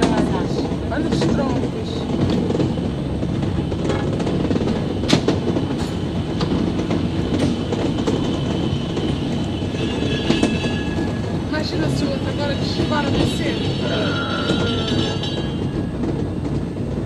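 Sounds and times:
rail car rumbling: 0.0 - 17.0
wheels clicking on track: 0.0 - 17.0.

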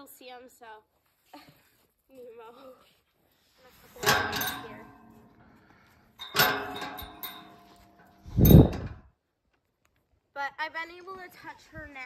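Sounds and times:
metallic clanks on steel pipe: 3.9 - 9.0.

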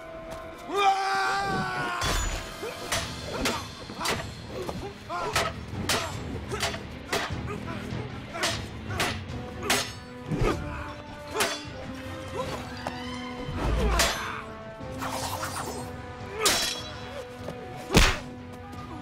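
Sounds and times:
film score with held notes: 0.0 - 19.0
staff and blade clashing: 2.1 - 4.4, 5.2 - 7.4, 8.3 - 10.4, 11.3 - 11.8, 13.8 - 14.4, 16.4 - 17.1.

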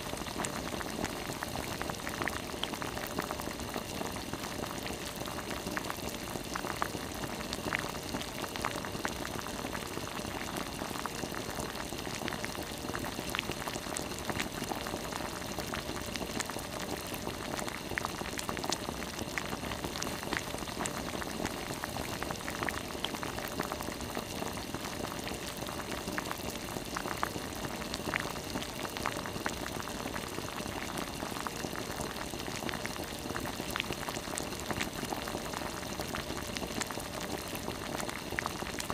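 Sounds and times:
broth boiling and bubbling: 0.0 - 38.9.

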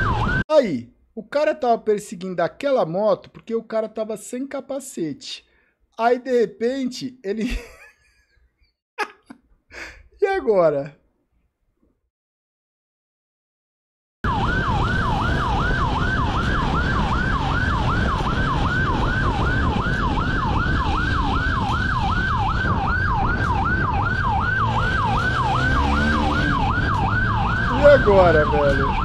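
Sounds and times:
police siren fast yelp: 0.0 - 0.4, 14.2 - 29.0
motorcycle wind and road noise: 14.3 - 29.0.

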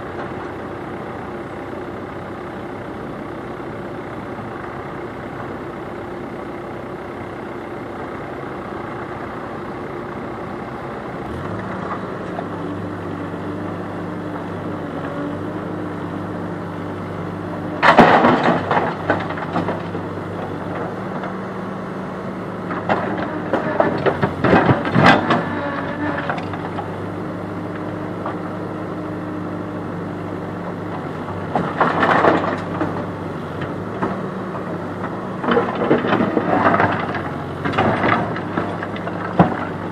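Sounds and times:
diesel engines running: 0.0 - 39.9
rocks crashing into metal trailer: 17.8 - 19.9, 35.5 - 39.7.

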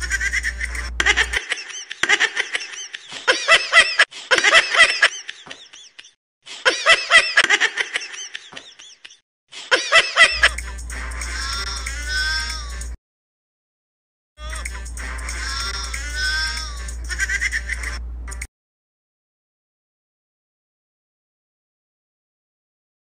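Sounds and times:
person laughing: 0.0 - 11.9, 17.1 - 18.4
music track: 10.4 - 13.0, 14.4 - 18.5.

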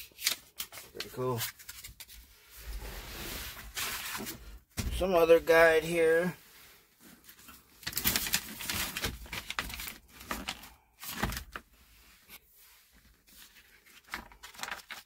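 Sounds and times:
paper rustling: 0.0 - 4.4, 7.2 - 11.7, 12.9 - 15.0.

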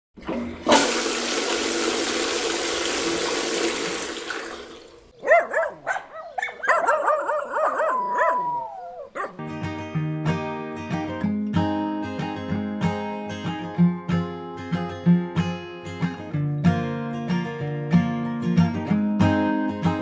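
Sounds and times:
dog whining and yelping: 5.2 - 9.4
acoustic guitar music: 9.3 - 20.0.

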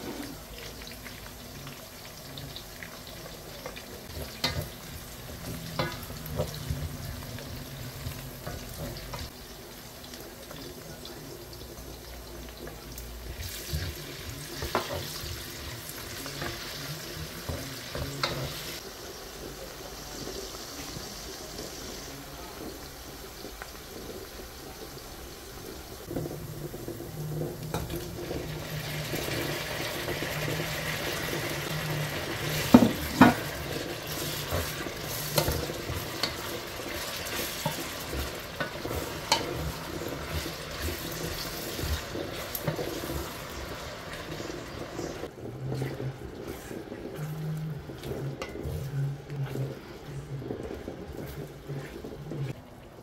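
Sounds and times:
onions and tomatoes frying: 0.0 - 53.0
wooden spoon stirring in pot: 0.0 - 53.0.

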